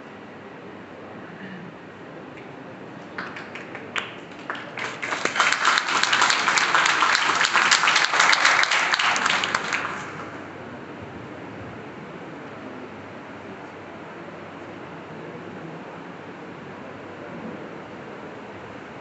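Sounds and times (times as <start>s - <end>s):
audience applauding: 3.0s - 10.7s.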